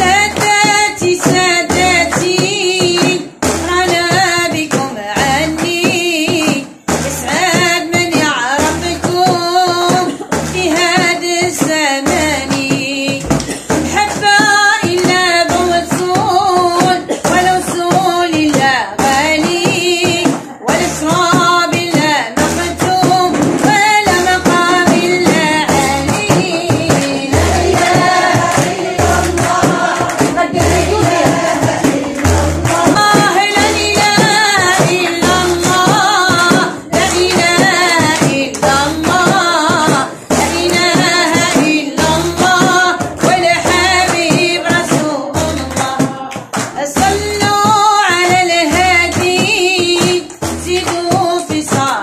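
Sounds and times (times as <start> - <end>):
frame drum beating: 0.0 - 52.0
woman singing a chant: 0.0 - 52.0.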